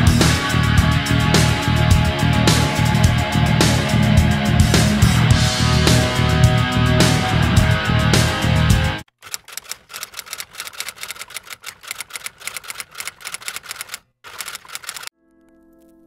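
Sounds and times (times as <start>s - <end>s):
rock guitar music: 0.0s - 9.0s
typewriter key clacks: 9.2s - 15.1s
soft music: 15.1s - 16.0s.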